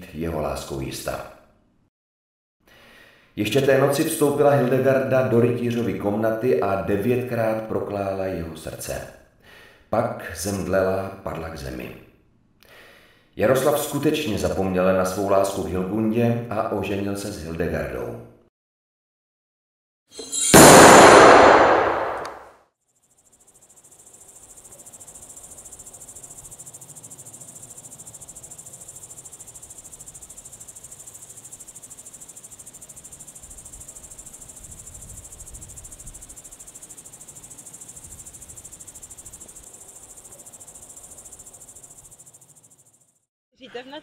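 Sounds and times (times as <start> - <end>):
loud sudden crash: 20.2 - 22.4
crickets chirring: 22.9 - 43.3.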